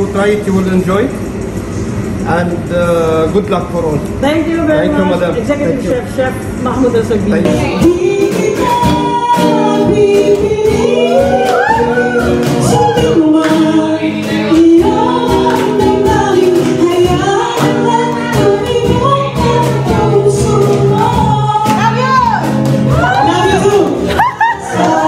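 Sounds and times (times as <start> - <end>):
acoustic guitar: 0.0 - 25.0
cajon: 5.8 - 25.0
woman singing into a microphone: 7.5 - 25.0.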